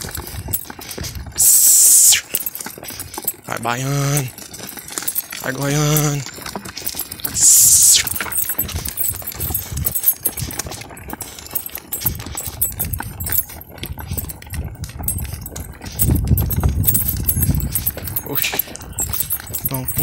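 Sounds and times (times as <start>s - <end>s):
hooves clip-clopping on pavement: 0.0s - 20.0s.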